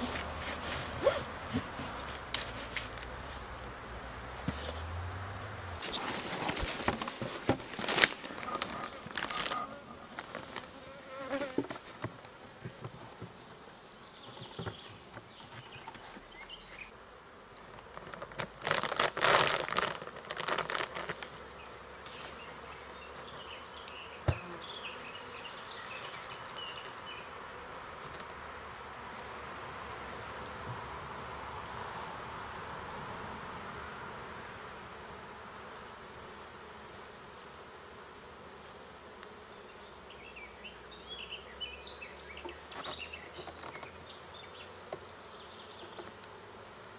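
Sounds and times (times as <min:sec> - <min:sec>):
hive boxes knocking and rustling: 0:00.0 - 0:03.5, 0:05.8 - 0:13.6, 0:14.2 - 0:16.2, 0:17.6 - 0:21.4, 0:24.2 - 0:24.7, 0:42.4 - 0:44.1
honeybees buzzing: 0:00.0 - 0:46.9.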